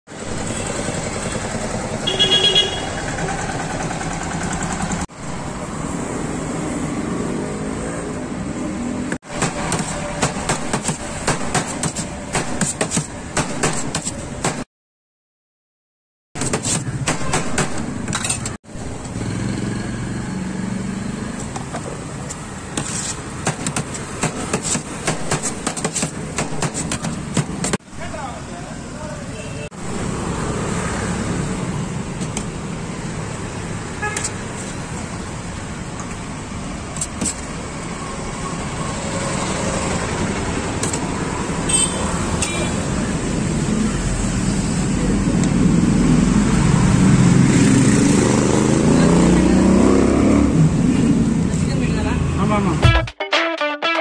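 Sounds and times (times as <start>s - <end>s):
road traffic noise: 0.1s - 14.7s, 16.4s - 54.0s
vehicle horn honking: 2.0s - 3.1s, 41.7s - 42.8s
cleaver chopping on steel tray: 9.3s - 14.6s, 22.8s - 27.8s.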